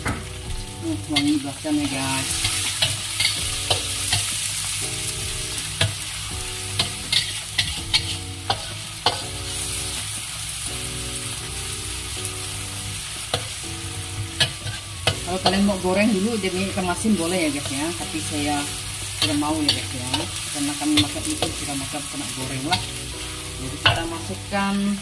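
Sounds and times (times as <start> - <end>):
food sizzling in hot oil: 0.0 - 25.0
metal spatula scraping a wok: 1.1 - 10.1, 14.3 - 24.2.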